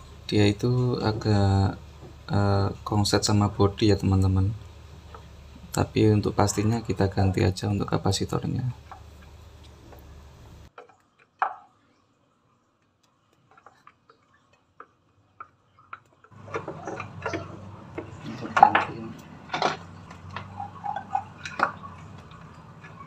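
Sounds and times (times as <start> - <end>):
low background hum: 0.0 - 23.0
hand tools clicking and knocking: 14.8 - 23.0.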